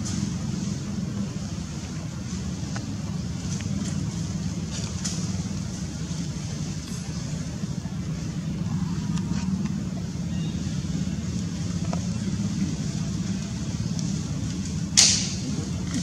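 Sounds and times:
low engine drone: 0.0s - 16.0s.

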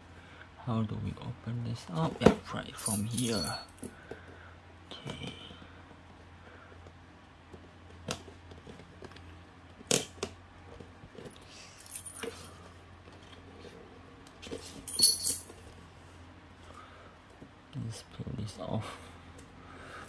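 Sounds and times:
keys clinking on a ring: 2.8s - 3.9s, 11.8s - 12.4s, 14.7s - 15.5s.

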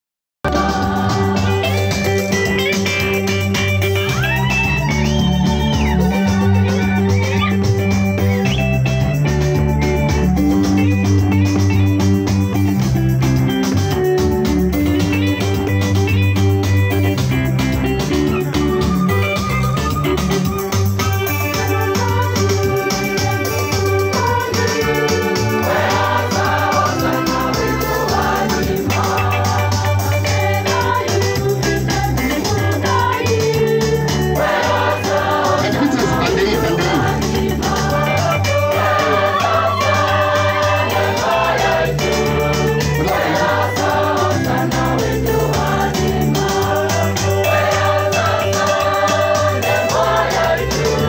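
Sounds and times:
electronic organ and keyboard music: 0.4s - 51.0s
steady beat: 23.2s - 51.0s.

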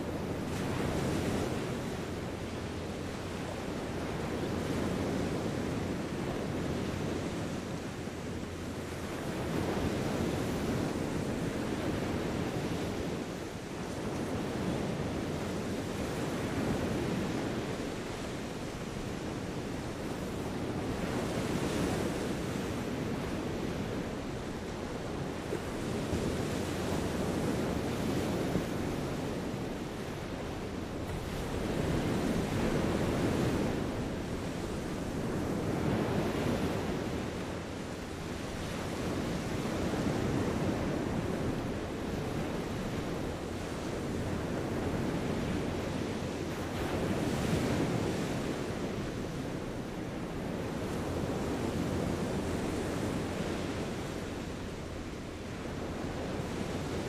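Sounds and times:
small waves on sandy beach: 0.0s - 57.0s.

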